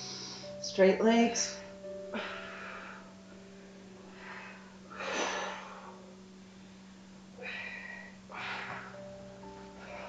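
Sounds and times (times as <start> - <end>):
woman breathing: 0.0 - 0.6, 1.5 - 10.0
woman exhaling forcefully: 4.2 - 6.0, 7.4 - 9.0.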